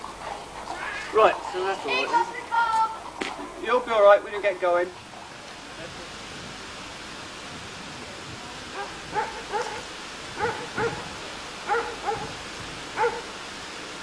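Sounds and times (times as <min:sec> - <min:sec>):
background hiss: 0:00.0 - 0:14.0
small dogs yapping: 0:08.8 - 0:11.1, 0:11.7 - 0:12.4, 0:13.0 - 0:13.3.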